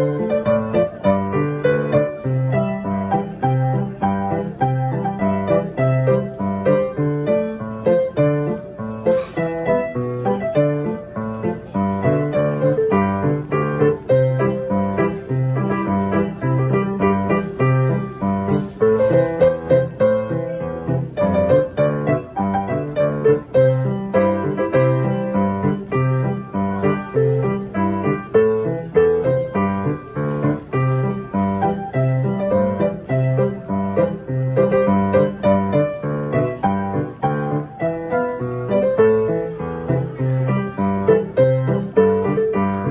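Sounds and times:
solo piano pop song: 0.0s - 42.9s.

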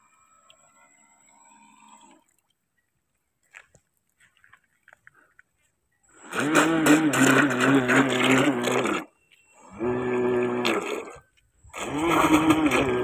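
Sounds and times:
propeller churning water: 6.1s - 13.0s
electric motor humming: 11.8s - 13.0s.

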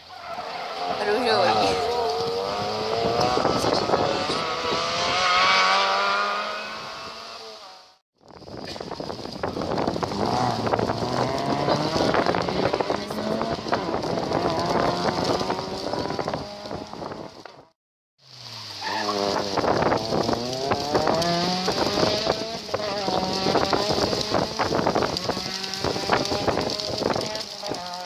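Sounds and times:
rally car engine accelerating: 0.5s - 8.0s, 9.0s - 17.7s, 18.4s - 28.0s.

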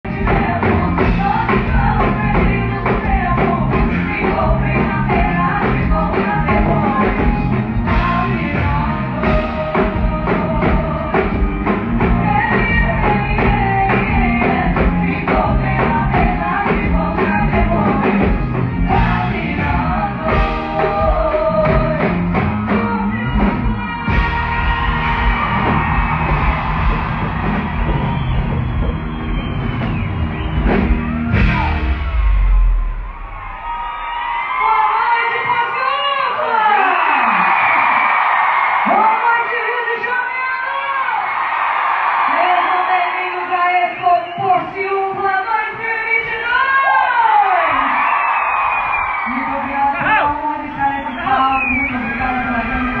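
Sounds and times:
full band playing: 0.0s - 53.0s
female vocal duo singing: 0.1s - 11.4s, 12.0s - 24.9s.

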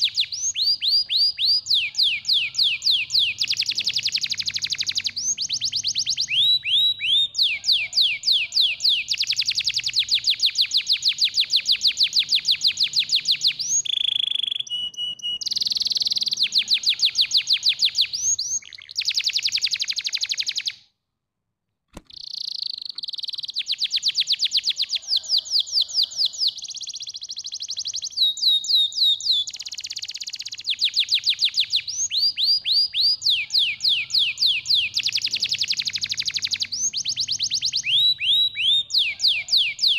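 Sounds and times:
canary singing trills: 0.0s - 20.8s, 22.1s - 39.9s.

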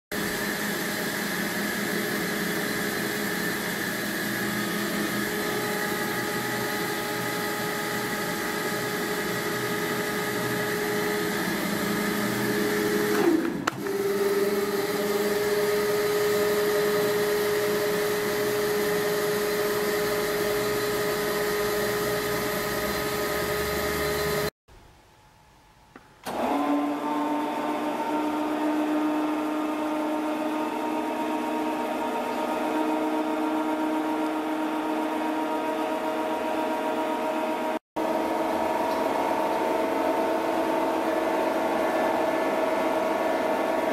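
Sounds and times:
motor whine of turntable: 0.2s - 24.5s.

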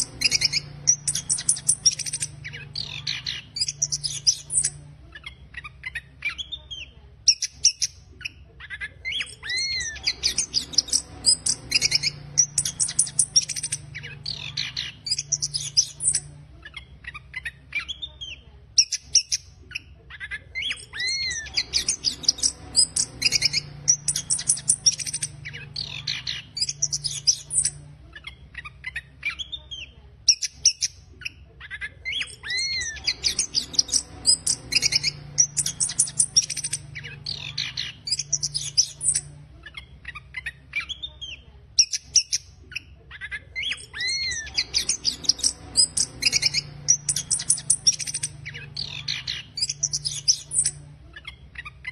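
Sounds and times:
faint low hum: 0.0s - 51.9s.

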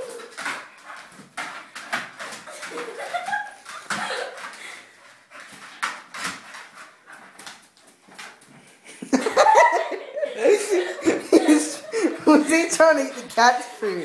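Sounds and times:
paws clicking on hard floor: 0.0s - 9.2s.

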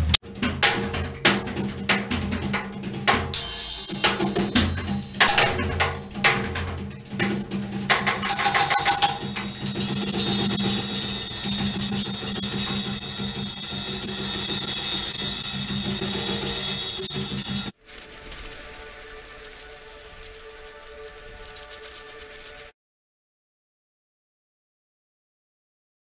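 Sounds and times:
cymbal crashes: 0.0s - 17.8s
drum kit played frantically: 0.0s - 17.8s.

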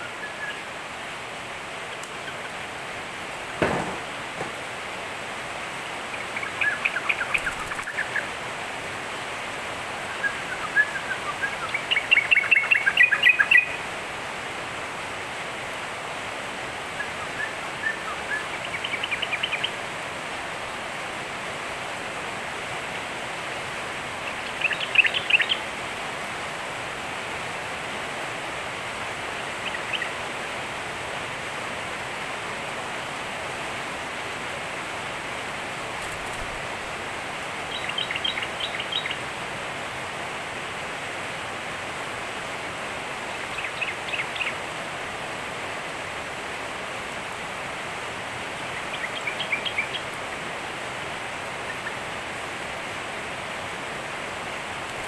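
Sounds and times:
steady hiss: 0.0s - 55.0s.

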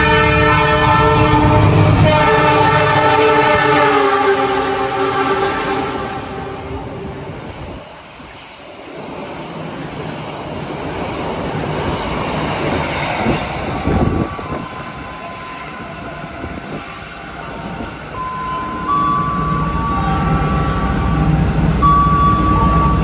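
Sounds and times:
passenger train passing: 0.0s - 23.0s
stationary train humming: 0.0s - 23.0s
long electronic tones: 18.1s - 23.0s.

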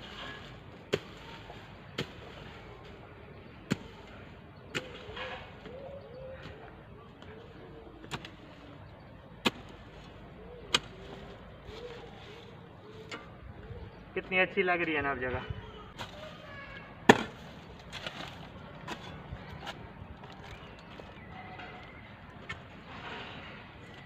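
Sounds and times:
hoe chopping and dragging soil: 0.0s - 3.0s, 3.6s - 5.7s, 8.0s - 13.3s, 16.0s - 19.8s.

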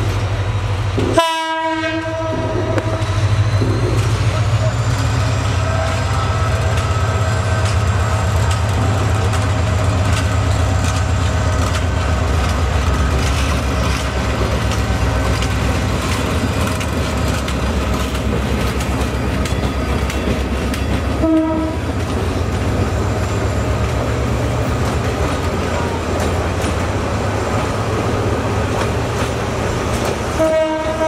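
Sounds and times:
locomotive engine drone: 0.0s - 31.0s
train coaches clattering over rails: 0.0s - 31.0s
train horn: 1.2s - 3.3s, 21.1s - 22.0s, 30.3s - 31.0s.

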